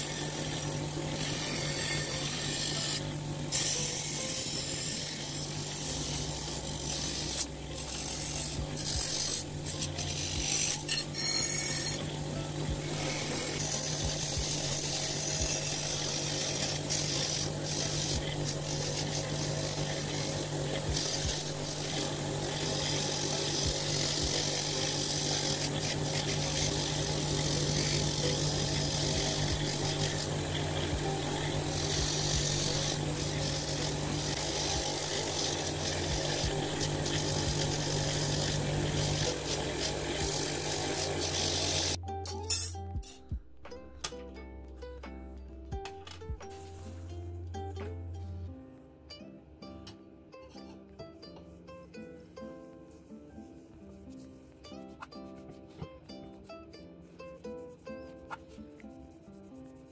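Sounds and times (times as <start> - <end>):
wire wheel brush motor humming: 0.0 - 42.0
bristles scratching metal: 0.0 - 43.4.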